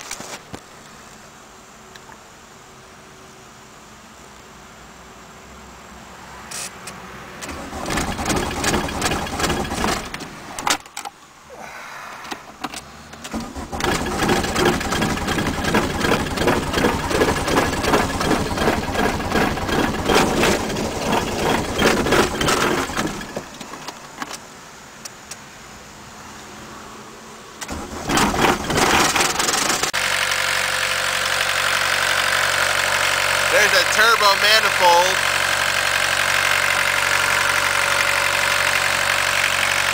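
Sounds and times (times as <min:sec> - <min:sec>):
diesel engine cranking: 0:07.4 - 0:11.1, 0:12.2 - 0:24.4, 0:27.6 - 0:39.9.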